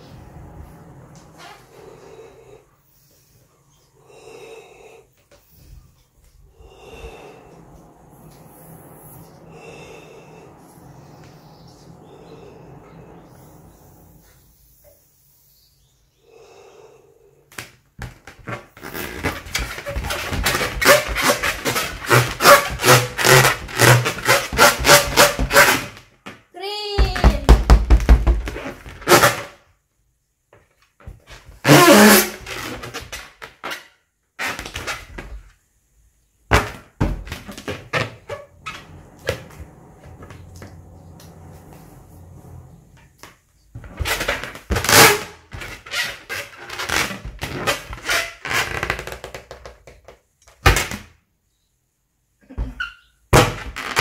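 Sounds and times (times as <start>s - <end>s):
puffs of air: 0.0s - 17.5s, 37.9s - 43.7s
knocks on balloon: 27.0s - 28.6s.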